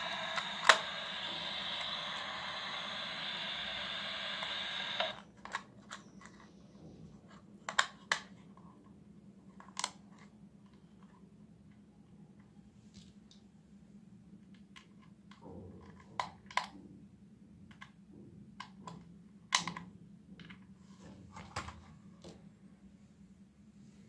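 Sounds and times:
plastic toy case clicking: 7.7 - 8.3.

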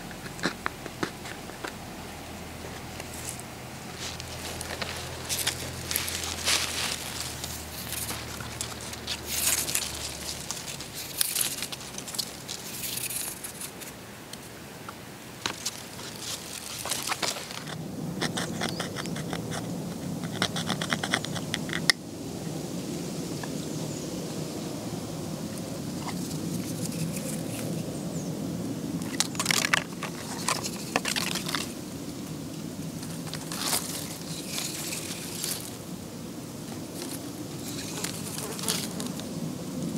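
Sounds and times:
rawhide crackling and rustling: 2.6 - 14.0, 15.4 - 17.8, 33.0 - 35.8.

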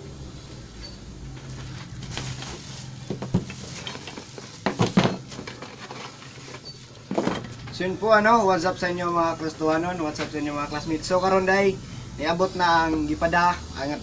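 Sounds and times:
packaging rustling and crinkling: 1.4 - 7.6
handling knocks: 2.0 - 5.8.

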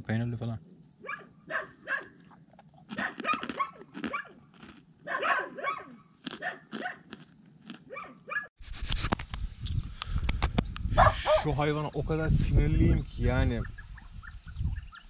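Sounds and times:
dog barking: 1.0 - 2.2, 2.9 - 4.4, 5.0 - 7.2, 7.9 - 8.5, 11.0 - 11.5.

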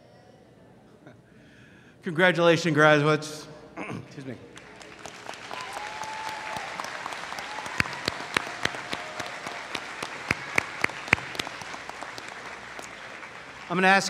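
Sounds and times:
crowd applauding: 4.5 - 14.0
sharp claps close by: 4.6 - 14.0.

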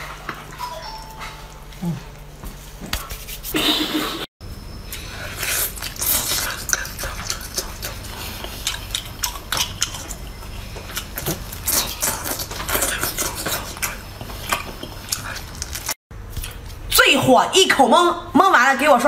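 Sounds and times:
wet smacking and chewing: 5.4 - 16.8.

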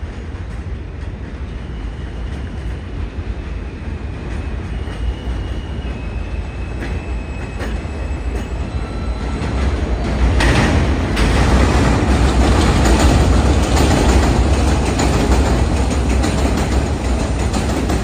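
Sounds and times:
train rumble on elevated track: 0.0 - 18.0
wheel squeals: 4.4 - 10.1.

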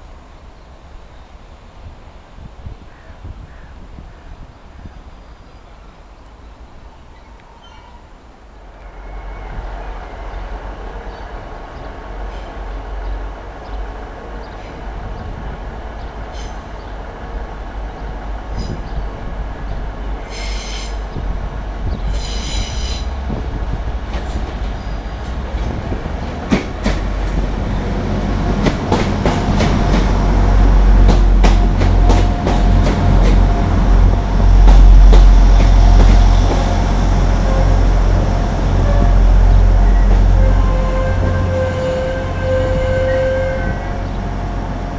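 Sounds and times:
diesel train engine rumble: 4.4 - 44.9
train wheel squeal: 7.2 - 8.1, 8.9 - 9.9, 20.3 - 21.0, 22.0 - 23.2
train wheels clicking over rail joints: 22.0 - 36.8.

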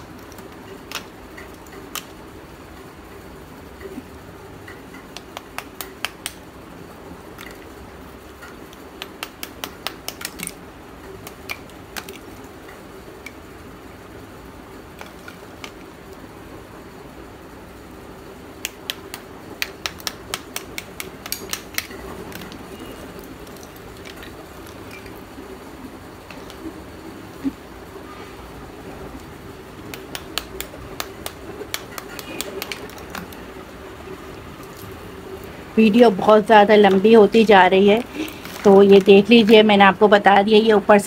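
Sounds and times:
steady low hum: 0.0 - 41.0
clay slabs clicking and clattering: 8.4 - 10.6, 18.6 - 22.6, 29.9 - 33.4.

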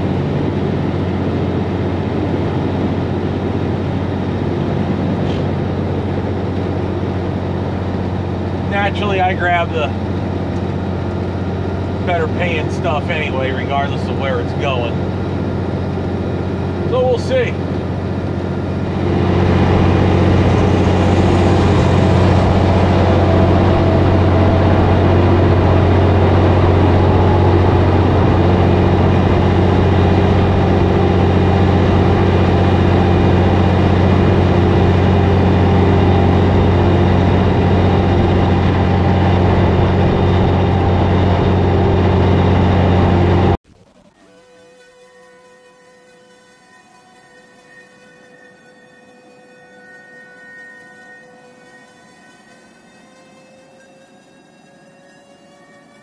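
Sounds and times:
diesel truck engine droning: 0.0 - 43.6
road noise: 0.0 - 43.6.

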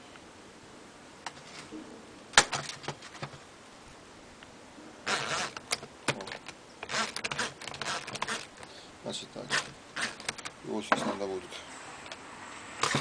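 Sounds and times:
short scraping rattles: 5.1 - 8.8, 9.4 - 11.3.

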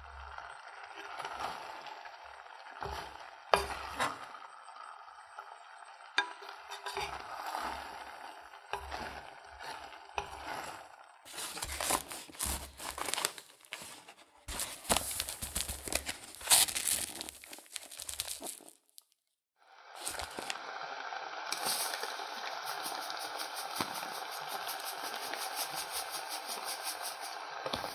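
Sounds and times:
sugar pouring hiss: 0.0 - 19.1, 19.9 - 27.9
wooden spatula scraping metal pot: 1.0 - 4.4, 6.1 - 18.8, 21.6 - 27.9
paper bag crinkling: 11.3 - 19.2, 20.0 - 20.6, 21.6 - 27.9.

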